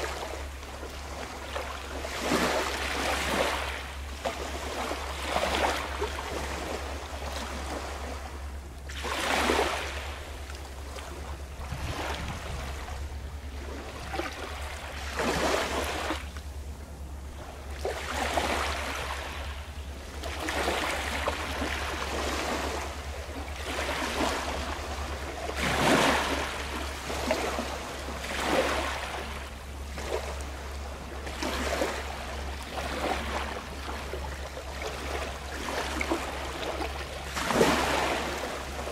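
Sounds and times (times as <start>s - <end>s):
small waves washing ashore: 0.0s - 38.9s
steady low rumble: 9.9s - 31.3s.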